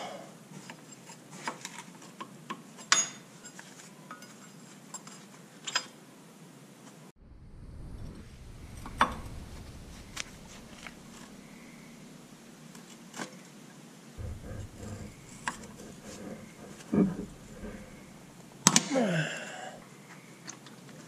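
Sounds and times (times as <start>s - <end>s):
low rubbing and handling noise: 7.2s - 12.4s, 14.2s - 19.8s.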